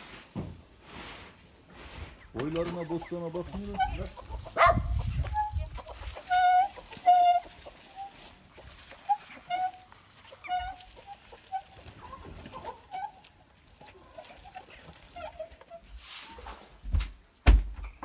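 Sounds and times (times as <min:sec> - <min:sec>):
hens clucking: 0:02.0 - 0:16.8
dull thump: 0:16.9 - 0:18.0.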